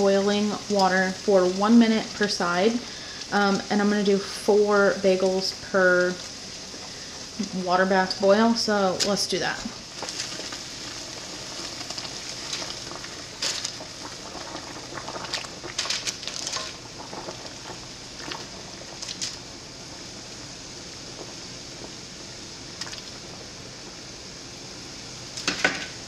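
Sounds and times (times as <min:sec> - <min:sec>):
water boiling: 0:00.0 - 0:26.0
water splashes: 0:22.8 - 0:23.2.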